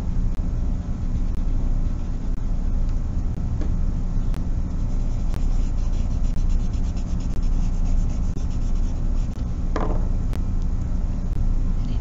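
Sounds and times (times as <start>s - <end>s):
steady low rumble: 0.0s - 12.0s
eraser rubbing on paper: 4.7s - 9.4s.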